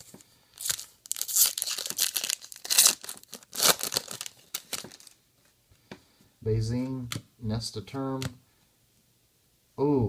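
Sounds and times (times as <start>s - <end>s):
foil wrapper tearing and crinkling: 0.6s - 5.2s.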